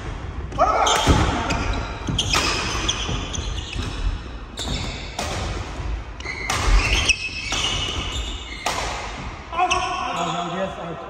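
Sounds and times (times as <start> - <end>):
rackets hitting shuttlecock: 0.9 - 9.8
shoes squeaking on wooden floor: 1.5 - 5.2, 6.2 - 8.7.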